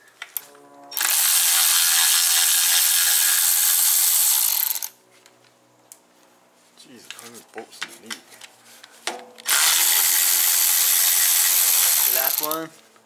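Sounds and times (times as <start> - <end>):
electric ratchet running: 1.0 - 5.0, 9.4 - 12.6.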